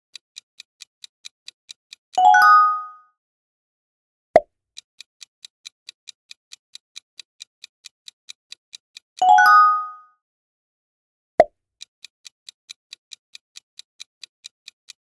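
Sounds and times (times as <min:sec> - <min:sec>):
clock ticking: 0:00.1 - 0:02.8, 0:04.8 - 0:10.0, 0:11.8 - 0:15.0
bright multi-note chime: 0:02.2 - 0:03.0, 0:09.2 - 0:10.1.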